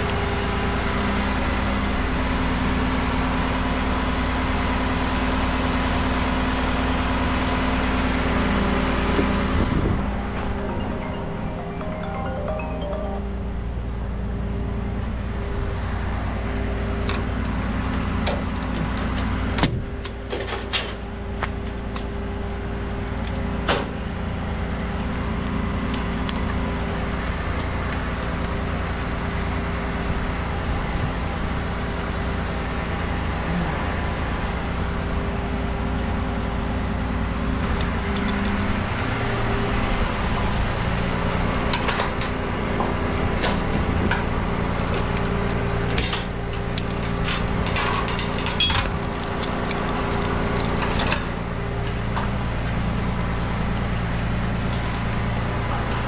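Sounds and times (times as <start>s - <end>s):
diesel engine idling: 0.0s - 11.7s.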